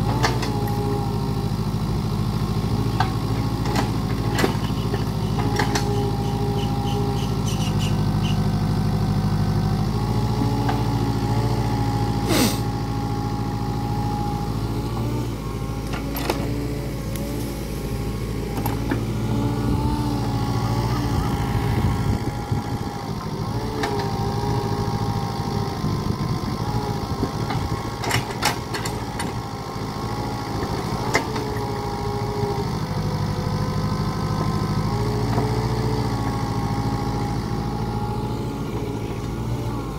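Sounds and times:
excavator engine running: 0.0s - 39.9s
hydraulic whine: 10.5s - 13.6s.

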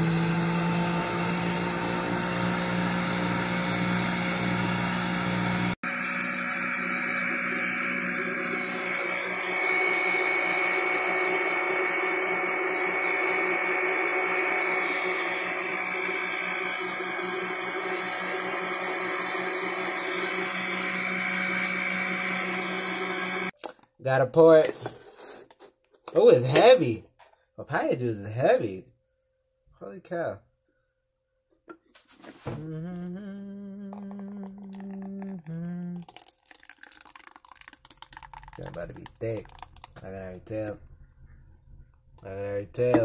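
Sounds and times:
juicer motor whining: 0.0s - 23.6s, 33.8s - 41.3s.

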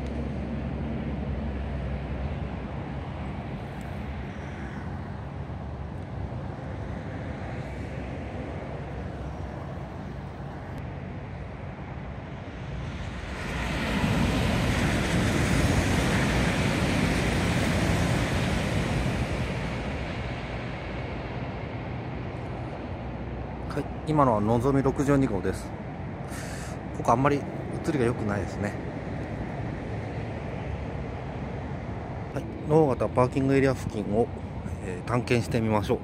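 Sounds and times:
train passing at speed: 0.0s - 36.0s.

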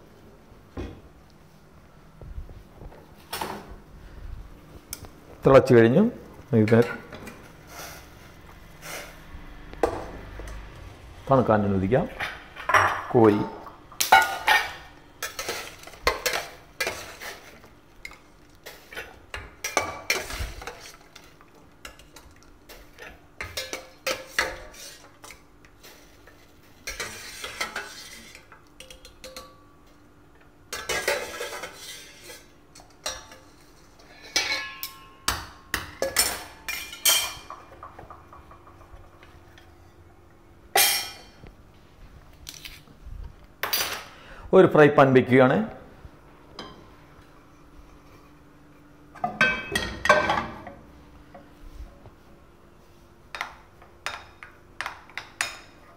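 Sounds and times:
metal ladle scraping steel pot: 26.8s - 28.5s, 30.9s - 33.2s.

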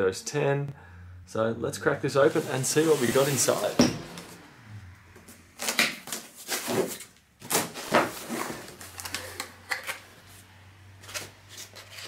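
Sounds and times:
cardboard box scraping and knocking: 2.3s - 4.1s.

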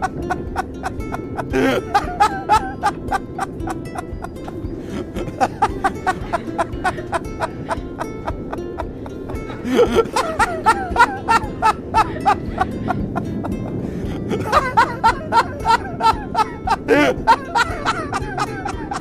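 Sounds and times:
background music with steady beat: 0.0s - 19.0s
people laughing: 0.0s - 19.0s.

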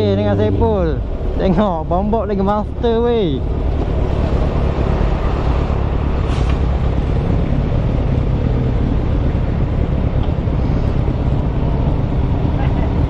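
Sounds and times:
wind rumble on camera: 0.0s - 13.0s.

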